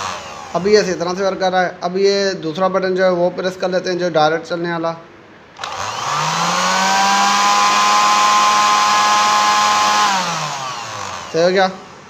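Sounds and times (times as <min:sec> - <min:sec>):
juicer motor whining: 0:00.0 - 0:00.8, 0:05.6 - 0:11.6.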